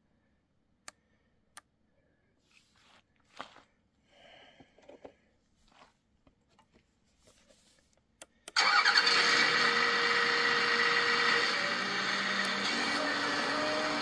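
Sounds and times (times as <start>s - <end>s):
toy excavator motor whining: 8.6s - 14.0s.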